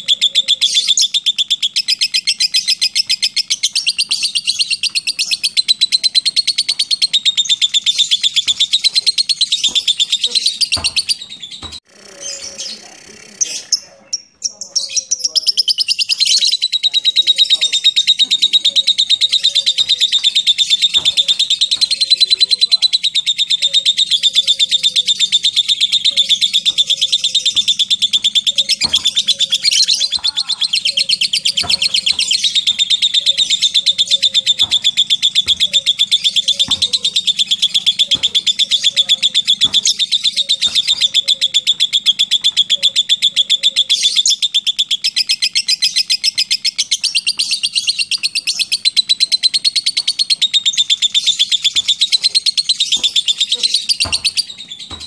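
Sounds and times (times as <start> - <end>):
lovebird rattling trill: 15.4 - 55.0.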